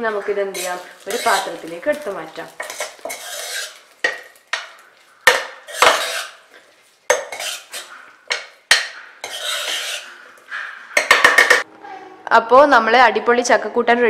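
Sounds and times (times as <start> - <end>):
spoon scraping metal pot: 0.5 - 1.8, 2.5 - 11.6.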